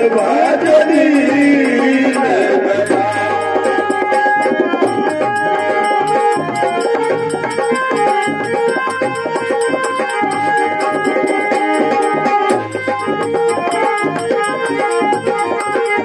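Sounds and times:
man singing: 0.0s - 4.0s
dholak drumming: 0.0s - 16.0s
harmonium held notes: 0.0s - 16.0s.

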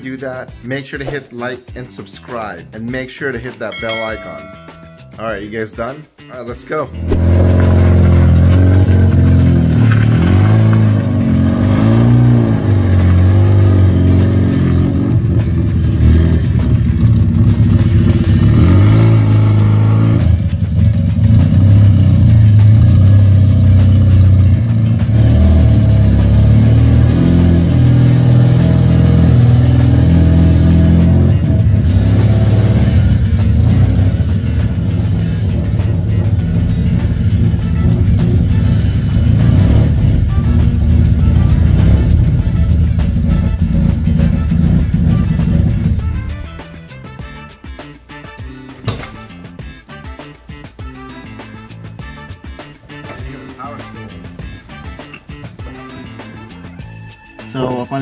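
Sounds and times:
rotary engine revving: 7.0s - 46.6s.

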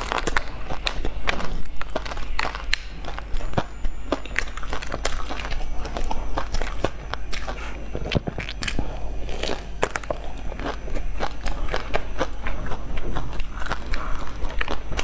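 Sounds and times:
biting and chewing bun: 0.0s - 15.0s.

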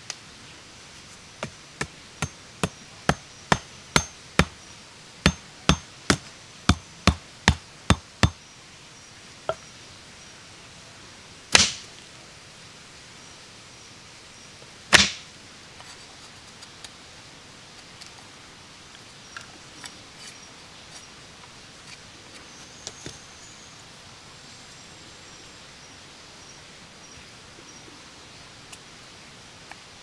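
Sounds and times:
hand tool striking: 1.4s - 4.6s, 5.2s - 8.4s.

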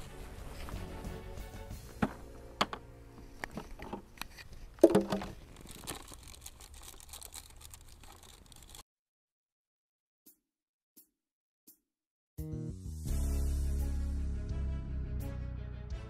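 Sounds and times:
crinkling while rummaging: 3.2s - 8.8s
plastic cooler clicks and knocks: 4.8s - 5.4s.

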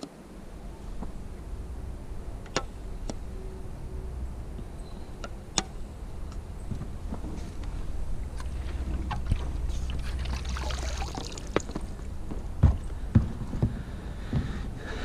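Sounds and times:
water splashing around pole: 8.4s - 11.7s.

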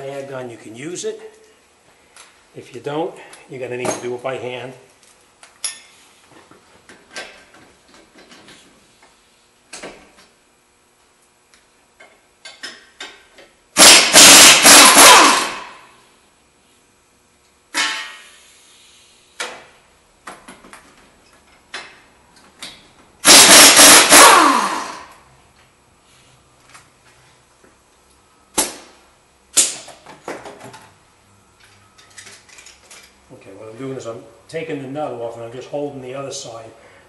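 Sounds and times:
pneumatic impact wrench hammering: 13.8s - 15.9s, 17.7s - 18.4s, 23.2s - 25.2s, 29.6s - 30.0s.

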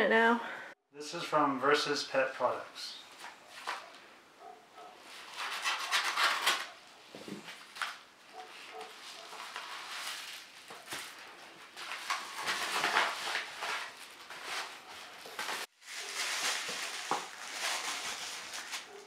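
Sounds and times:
paper packaging rustling and crinkling: 3.2s - 4.0s, 5.0s - 19.0s.

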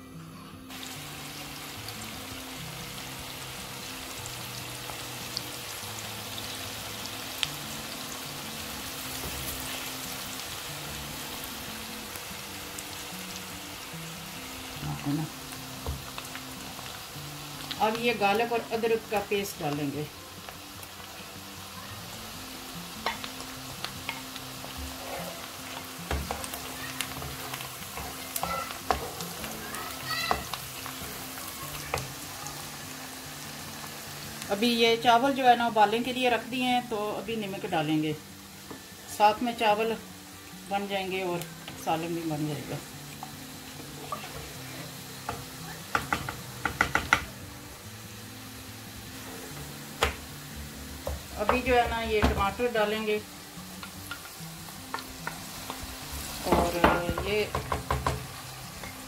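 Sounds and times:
onions sizzling in oil: 0.7s - 59.0s
spoon knocking against pan: 45.3s - 47.3s, 56.5s - 58.3s.

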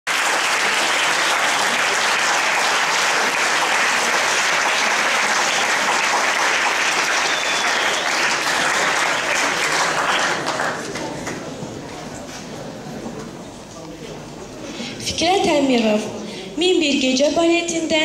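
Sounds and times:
audience applauding: 0.1s - 11.6s.

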